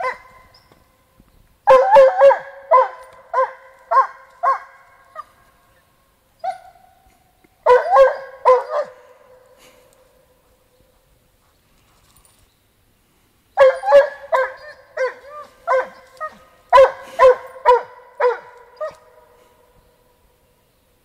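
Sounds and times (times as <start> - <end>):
hound baying: 0.0 - 0.6, 1.7 - 5.5, 7.6 - 11.1, 13.6 - 19.4.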